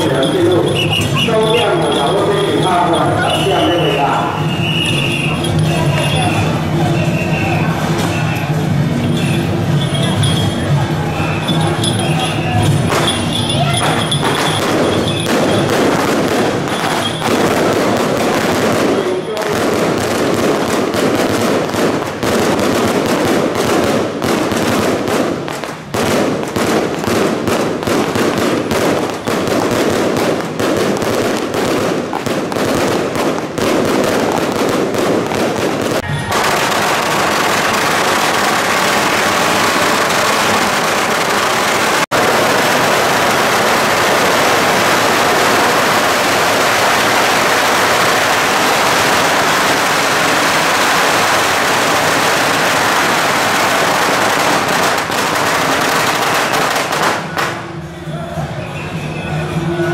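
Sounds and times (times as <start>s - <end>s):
firecrackers crackling: 0.0s - 58.0s
steady rushing noise: 14.0s - 56.3s.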